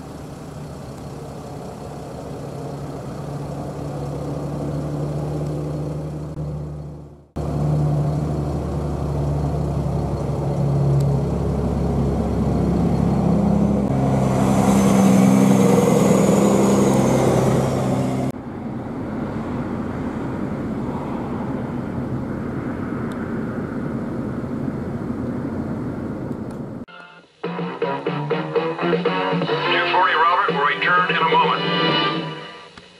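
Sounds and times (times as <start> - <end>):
engines running: 0.0 - 26.9.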